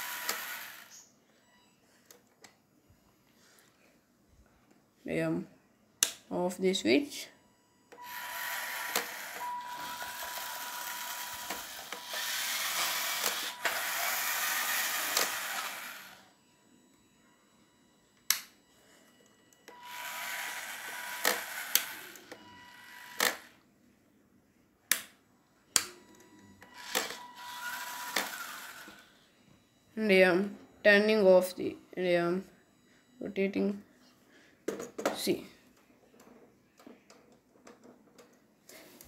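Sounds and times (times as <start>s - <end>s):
small motors humming and whining: 0.0s - 1.1s, 8.0s - 16.4s, 19.7s - 23.6s, 26.1s - 29.2s.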